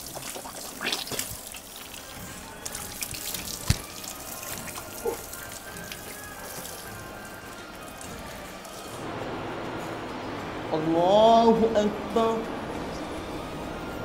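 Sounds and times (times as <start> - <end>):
tap water splashing: 0.0 - 7.0.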